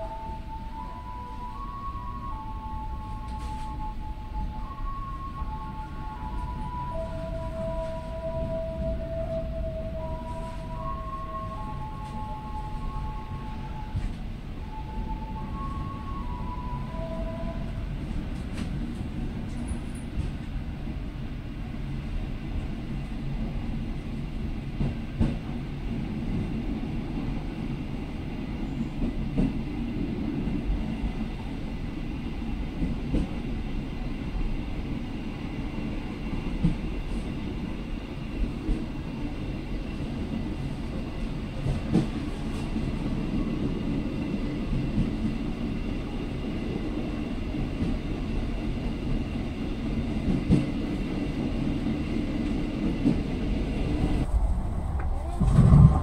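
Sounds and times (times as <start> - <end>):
train rumbling: 0.0 - 56.0
sharp knocks of train: 24.8 - 26.6, 29.0 - 29.9, 41.6 - 42.9, 50.2 - 51.0.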